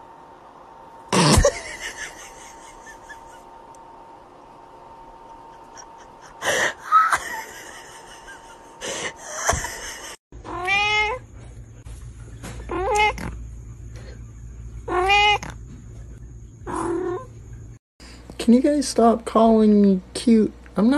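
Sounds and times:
cat meowing: 0:10.5 - 0:11.2, 0:12.7 - 0:13.4, 0:14.9 - 0:15.6, 0:16.7 - 0:17.3.

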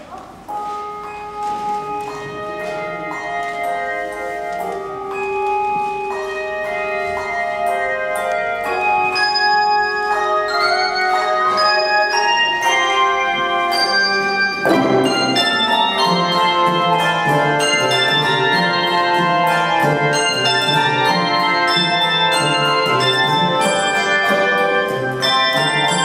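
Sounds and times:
handbell choir playing: 0:00.5 - 0:26.0.

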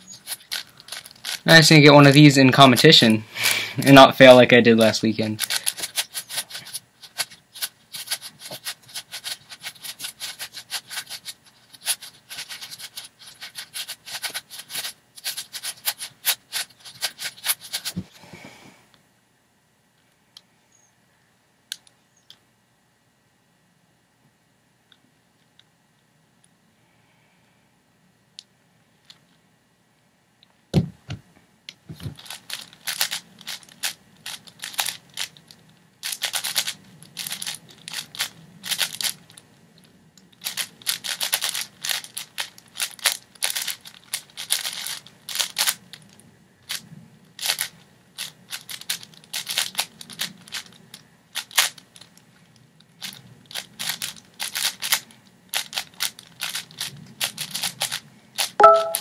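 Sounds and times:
puzzle cube clicking as turned: 0:00.2 - 0:01.5, 0:05.4 - 0:18.0, 0:32.1 - 0:35.4, 0:36.0 - 0:39.3, 0:40.4 - 0:45.8, 0:47.4 - 0:50.8, 0:51.4 - 0:52.1, 0:53.0 - 0:59.0.

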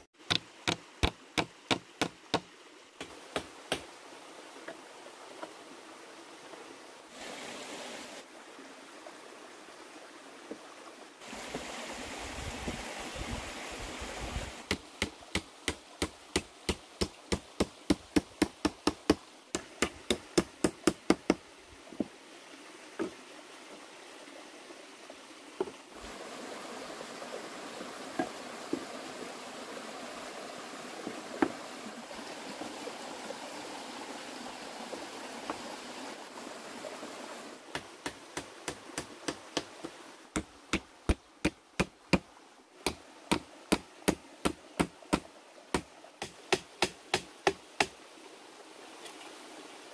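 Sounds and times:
tool knocking on wood: 0:00.3 - 0:03.8
steady background hiss: 0:00.3 - 0:49.9.

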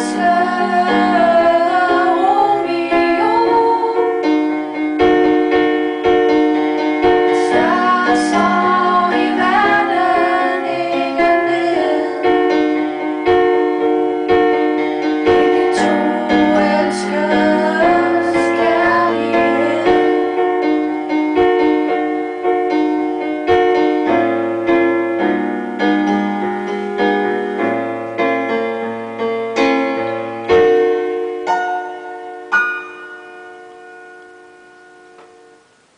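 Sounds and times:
woman singing: 0:00.0 - 0:04.3, 0:07.4 - 0:12.7, 0:15.3 - 0:20.4
piano accompaniment: 0:00.0 - 0:35.9.

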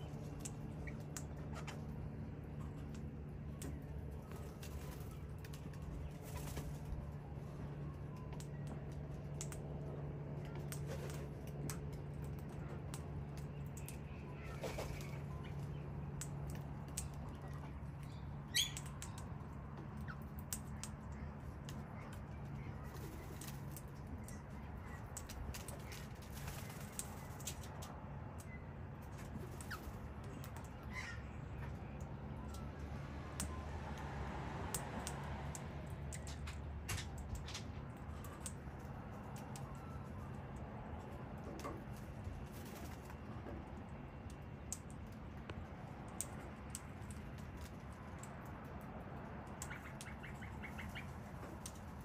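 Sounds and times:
steady low hum: 0:00.0 - 0:52.0
wing flutters: 0:13.5 - 0:15.8, 0:21.2 - 0:28.0.

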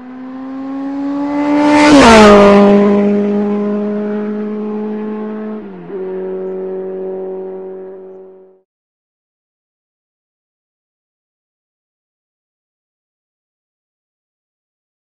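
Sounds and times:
high-revving engine passing by: 0:00.0 - 0:08.6.

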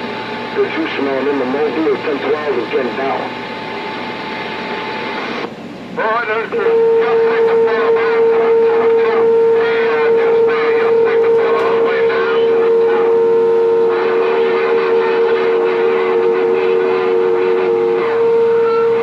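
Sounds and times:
faint garbled radio voices: 0:00.4 - 0:19.0
whistle-like radio tone: 0:06.5 - 0:19.0
second lower tone: 0:06.7 - 0:19.0.

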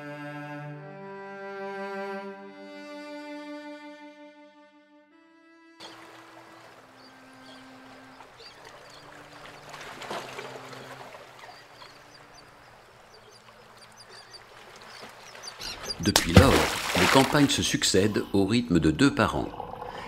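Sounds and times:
sea washing against rocks: 0:05.9 - 0:18.0.

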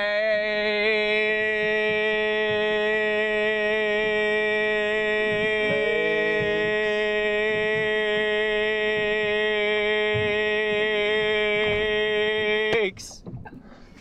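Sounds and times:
man's robotic monotone voice: 0:11.3 - 0:13.2.

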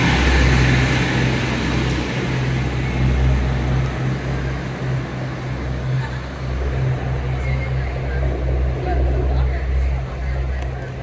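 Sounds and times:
diesel train engine running: 0:00.0 - 0:11.0.

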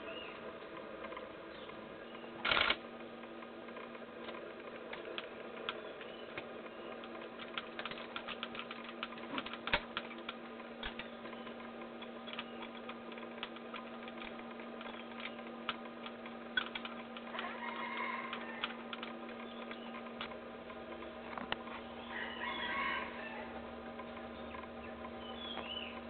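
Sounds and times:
drawn-out bird call: 0:00.0 - 0:02.8, 0:05.0 - 0:15.8, 0:16.4 - 0:26.0
camera shutters clicking: 0:02.4 - 0:02.8.

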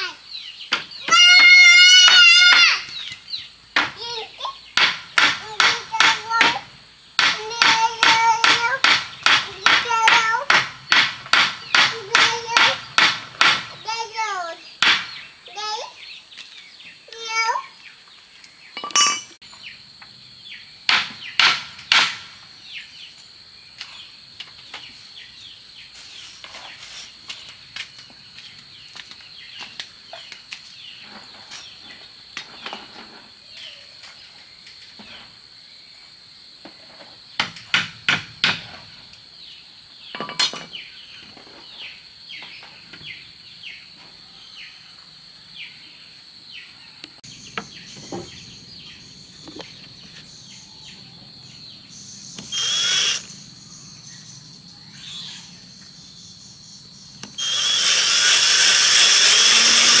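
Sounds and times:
sharp knocks of wood: 0:03.8 - 0:04.1, 0:04.8 - 0:13.8, 0:14.8 - 0:15.2, 0:20.9 - 0:22.4, 0:37.4 - 0:38.8
high insect drone: 0:41.3 - 1:00.0
power tool running: 0:52.3 - 0:53.4, 0:57.2 - 1:00.0.

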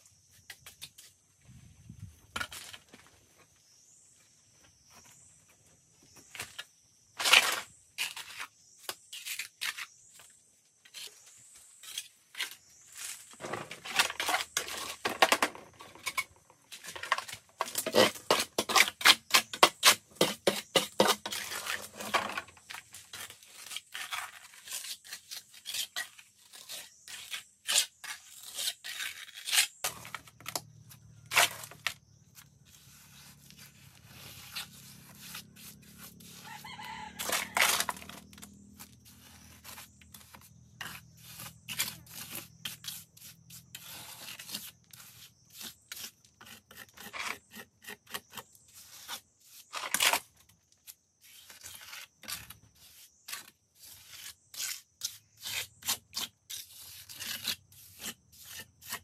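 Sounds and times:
clicks knocks and scraping: 0:11.9 - 0:23.4
rooster crowing: 0:36.4 - 0:38.0.

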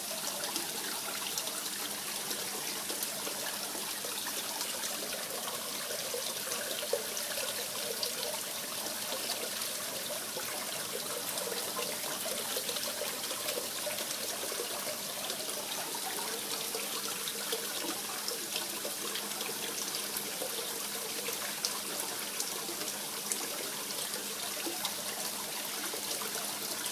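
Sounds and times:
water trickling and splashing: 0:00.0 - 0:26.9.

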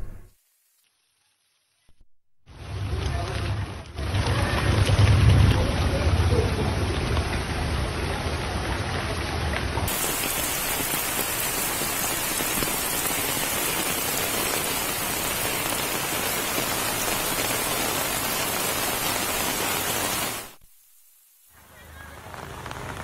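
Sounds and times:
heavy rain: 0:02.5 - 0:23.0.

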